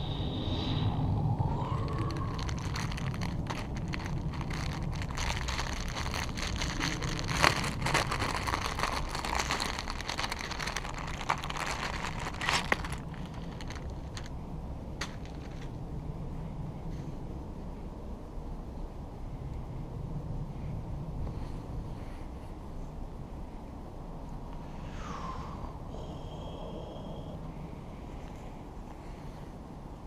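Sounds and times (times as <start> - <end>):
low rumble: 0.0 - 28.8
plastic bag crinkling: 1.7 - 14.4, 15.0 - 15.8.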